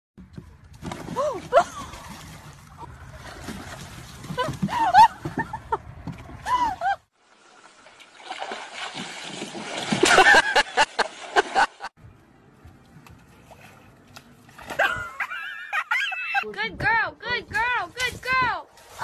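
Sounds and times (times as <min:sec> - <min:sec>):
water splashing: 0:00.7 - 0:05.6, 0:06.2 - 0:11.9.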